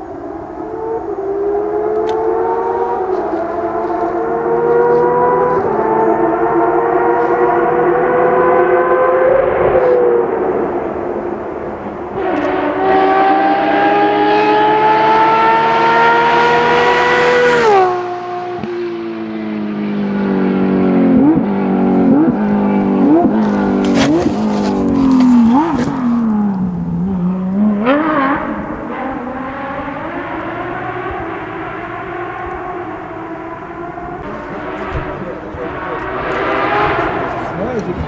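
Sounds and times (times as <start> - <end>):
rally car engine revving: 0.0 - 38.0
exhaust cracks: 20.0 - 30.0, 32.4 - 38.0.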